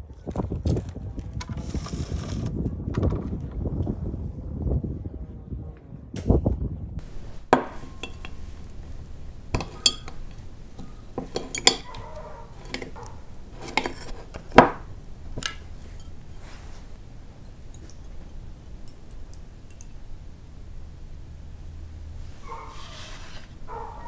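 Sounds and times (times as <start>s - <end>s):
metal and glass clinks: 7.0s - 14.8s.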